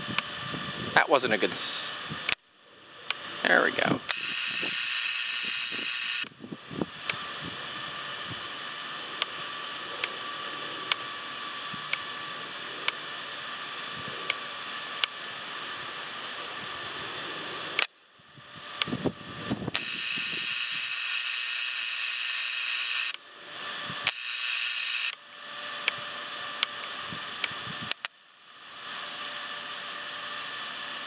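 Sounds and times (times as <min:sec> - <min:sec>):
sharp electric snaps: 0:02.2 - 0:03.2, 0:04.1 - 0:06.4, 0:11.8 - 0:12.1, 0:17.7 - 0:18.0, 0:19.7 - 0:23.3, 0:24.0 - 0:26.0, 0:26.6 - 0:28.2
electric hiss-buzz: 0:03.3 - 0:17.9, 0:18.9 - 0:25.2
spark gap buzzing crackle: 0:04.1 - 0:06.4, 0:19.7 - 0:23.3, 0:24.0 - 0:25.3.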